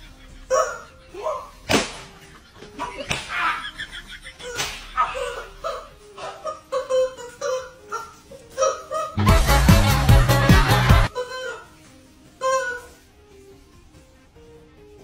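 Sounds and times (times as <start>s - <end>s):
background music: 0.0s - 15.0s
stick smacking a person: 1.7s - 2.2s, 3.0s - 3.4s, 4.6s - 5.0s.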